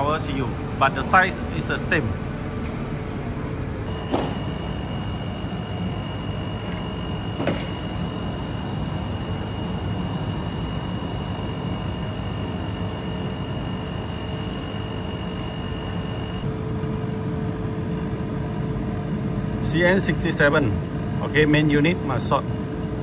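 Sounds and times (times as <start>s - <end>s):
low machine hum and rumble: 0.0s - 23.0s
lower steady hum tone: 0.0s - 23.0s
thin high whine: 3.8s - 23.0s.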